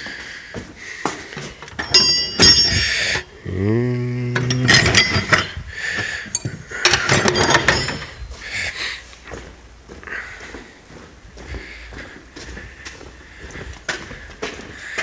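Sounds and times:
tools clattering in metal drawer: 1.4s - 3.3s, 4.5s - 5.6s, 6.2s - 8.3s
low droning tone: 3.3s - 5.6s.

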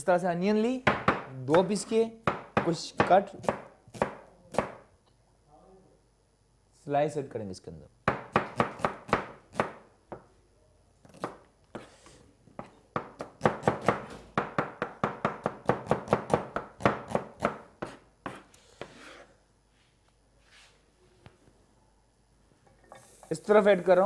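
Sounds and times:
knife slicing onion on board: 1.1s - 4.8s, 11.1s - 12.0s, 15.2s - 19.3s.

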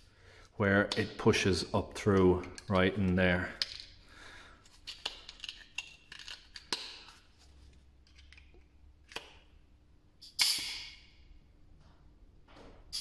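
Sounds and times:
clicks and knocks of pump handled: 2.1s - 4.0s, 4.6s - 7.2s
compressed air hissing: 10.2s - 11.0s.

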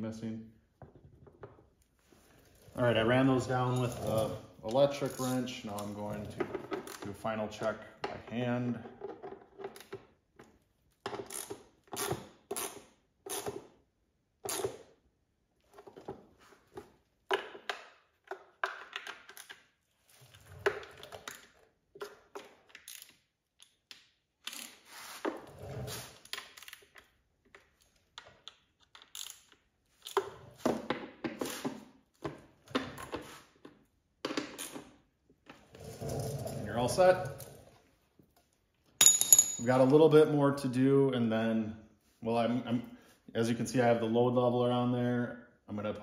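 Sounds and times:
hand ratchet clicking: 11.2s - 13.6s, 28.4s - 30.2s.

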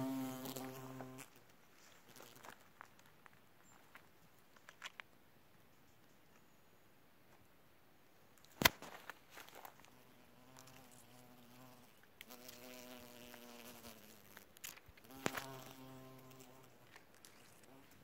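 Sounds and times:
flying insect buzzing: 0.0s - 1.3s, 10.4s - 16.8s.

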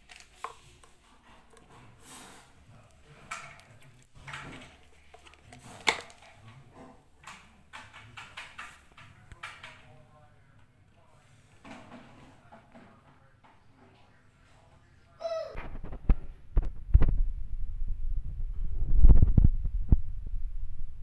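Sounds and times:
plastic parts clicking and scraping: 0.0s - 9.8s.

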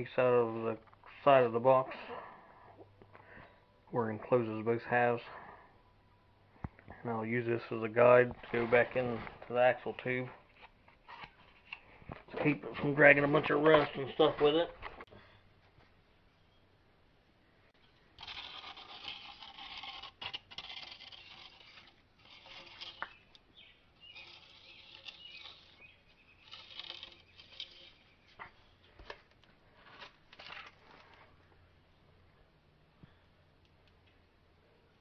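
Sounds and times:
cardboard scraping against metal: 18.2s - 28.4s.

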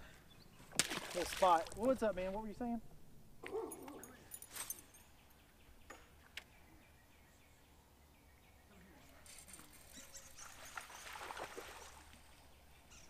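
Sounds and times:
faint bird chirps: 4.9s - 13.0s.

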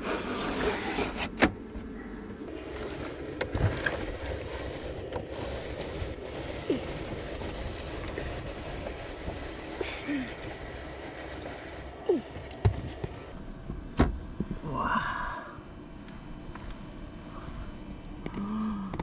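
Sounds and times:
rushing outside air: 2.4s - 13.6s
pleated blind pulled open: 2.5s - 12.3s.

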